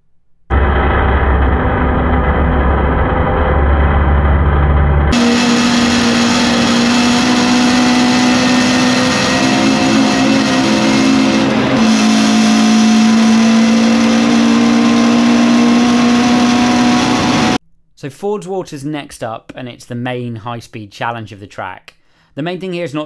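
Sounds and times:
racing car engine high-revving: 0.5s - 17.6s.

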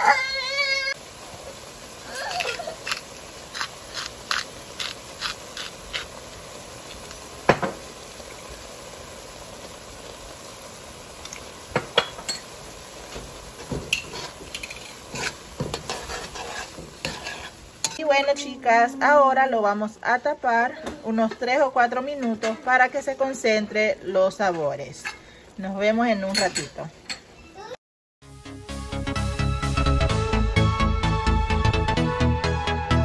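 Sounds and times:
utensils clinking on metal pan: 11.9s - 12.5s, 13.7s - 18.1s, 26.1s - 27.3s.

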